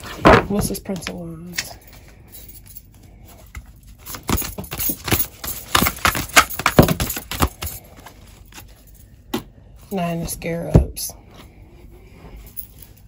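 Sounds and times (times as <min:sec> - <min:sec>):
cards shuffling: 0:03.5 - 0:08.8.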